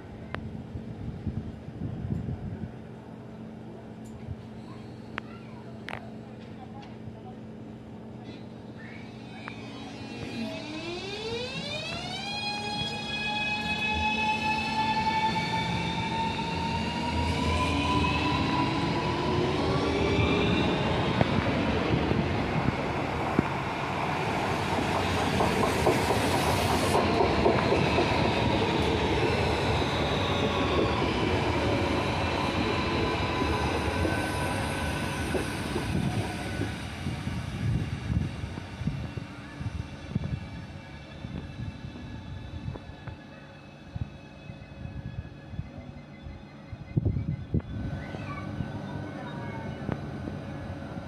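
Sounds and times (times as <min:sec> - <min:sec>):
traction motors whining: 0:08.8 - 0:51.0
train wheels clattering on rails: 0:24.6 - 0:29.4.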